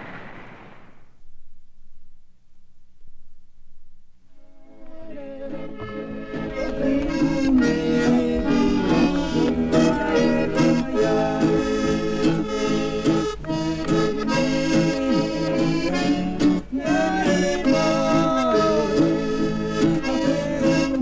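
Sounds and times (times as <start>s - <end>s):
street musicians playing: 4.8s - 21.0s.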